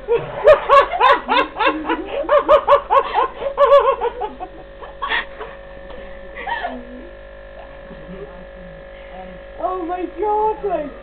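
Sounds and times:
person laughing hard: 0.0s - 5.6s.

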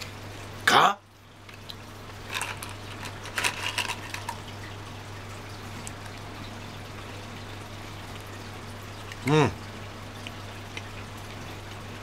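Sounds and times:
low electrical hum: 0.0s - 12.0s
candies rattling in cardboard box: 2.3s - 4.4s.

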